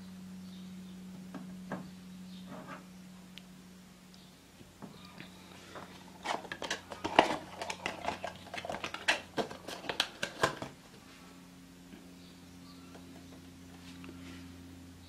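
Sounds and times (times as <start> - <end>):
steady low hum: 0.0 - 15.0
crisp clicks and scrapes: 5.9 - 10.8.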